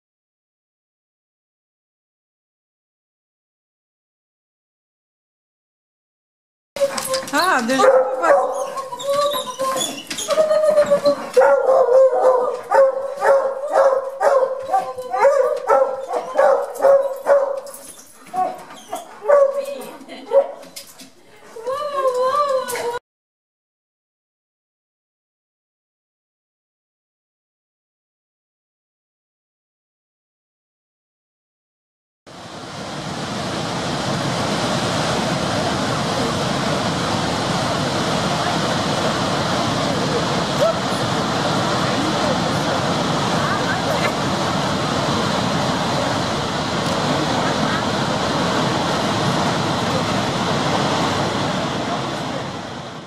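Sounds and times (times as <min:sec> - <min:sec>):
dog howling: 0:06.8 - 0:20.6
dogs barking and yelping: 0:06.8 - 0:20.8
waterfall rushing: 0:32.3 - 0:53.0.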